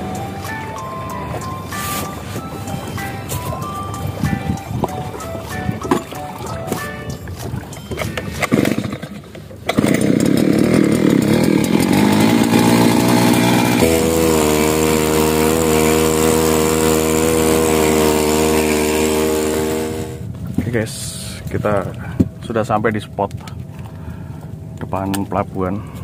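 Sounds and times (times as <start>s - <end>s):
outboard engine pull-started: 0.0s - 20.3s.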